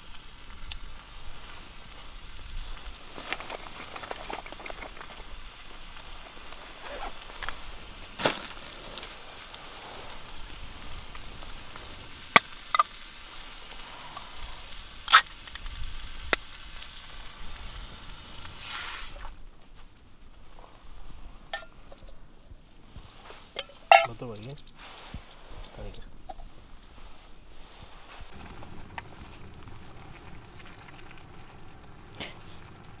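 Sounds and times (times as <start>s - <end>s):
camping stove hissing: 0.0s - 19.4s, 26.3s - 33.0s.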